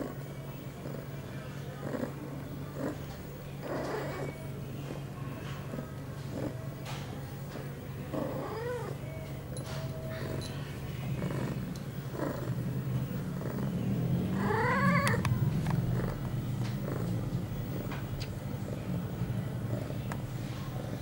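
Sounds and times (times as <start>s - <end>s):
cat purring: 0.0s - 21.0s
cat yowling: 8.2s - 9.0s, 14.4s - 15.2s.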